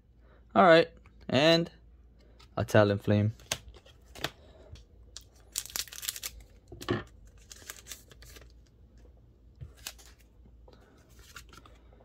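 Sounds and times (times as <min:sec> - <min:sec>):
wrapper rustling: 0:05.4 - 0:06.6.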